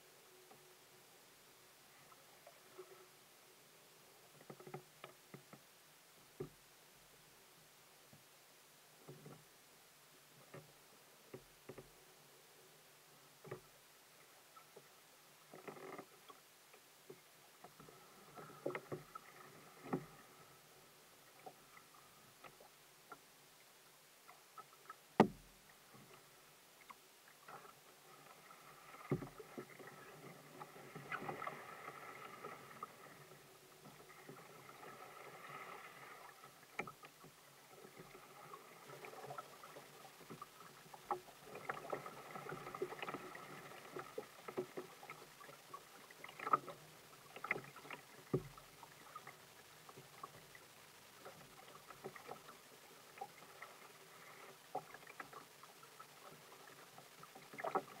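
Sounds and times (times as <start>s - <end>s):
water lapping at hull: 0.0s - 8.3s, 8.9s - 58.0s
paddle splashes and drips: 13.4s - 23.3s, 24.2s - 58.0s
light knocks against boat: 25.2s - 25.5s.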